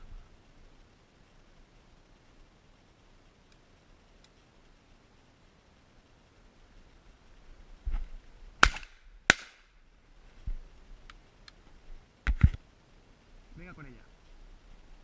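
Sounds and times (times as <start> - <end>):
shotgun bangs: 8.6 - 9.6.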